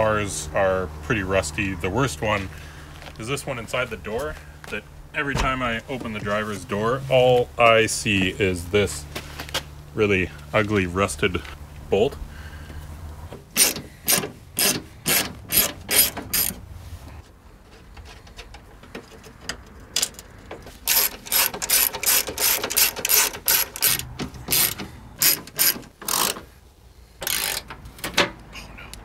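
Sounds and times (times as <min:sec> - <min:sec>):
hand ratchet clicking: 0:13.5 - 0:16.6, 0:20.0 - 0:26.5, 0:27.2 - 0:27.8.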